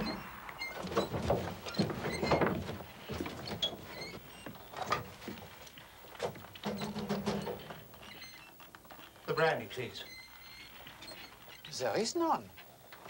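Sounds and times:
short low drone: 0:00.0 - 0:01.4.

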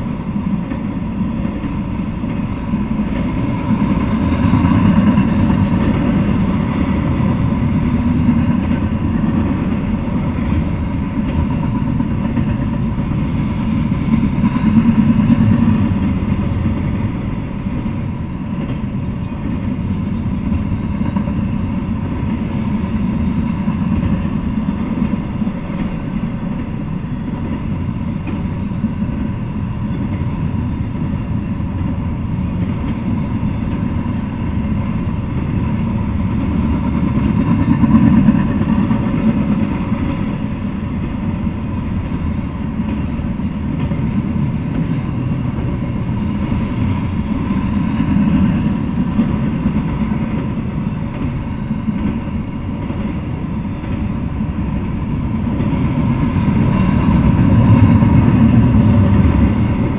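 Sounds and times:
freight train wheels rumbling: 0:00.0 - 0:59.9.

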